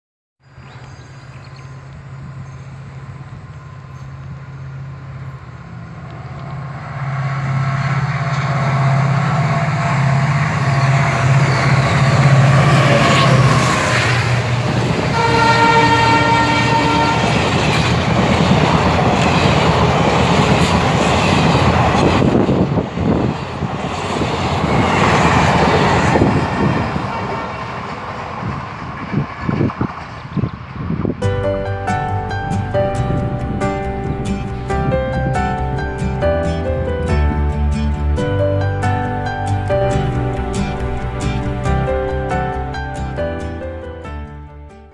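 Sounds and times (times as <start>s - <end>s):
passenger coaches running on rails: 0.5s - 44.2s
diesel locomotive engine droning: 0.5s - 44.9s
train horn: 6.3s - 18.0s.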